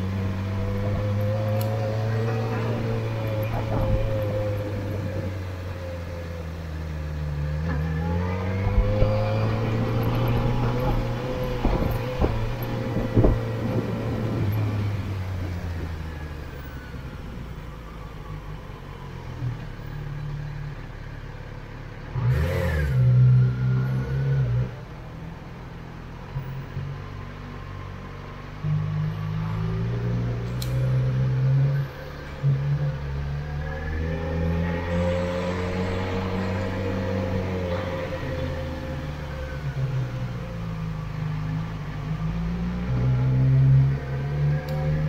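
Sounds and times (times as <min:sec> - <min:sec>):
motorcycle engine accelerating: 0:00.0 - 0:06.6, 0:07.2 - 0:16.1.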